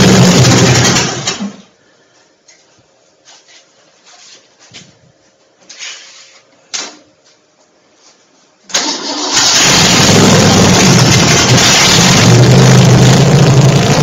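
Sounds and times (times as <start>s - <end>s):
starter motor cranking engine: 0.0s - 1.5s, 8.7s - 14.0s.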